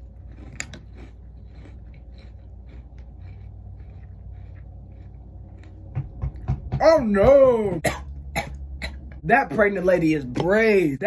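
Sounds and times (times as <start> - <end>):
person chewing crunchy cereal: 0.0 - 6.5
steady low hum: 0.0 - 11.0.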